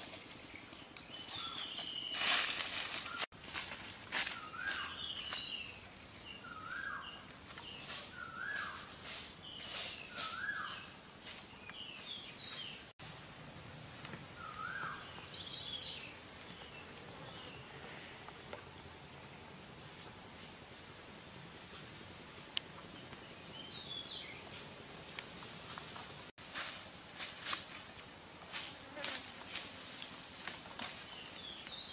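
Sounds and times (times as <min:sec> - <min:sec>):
birds calling: 0:00.0 - 0:08.9, 0:14.3 - 0:17.7.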